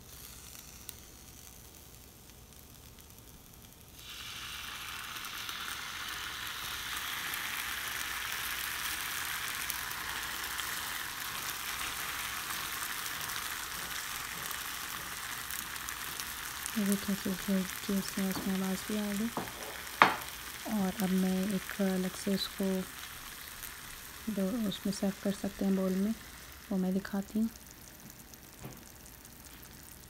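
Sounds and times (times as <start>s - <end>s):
sauce sizzling on hot metal plate: 0.0s - 30.0s.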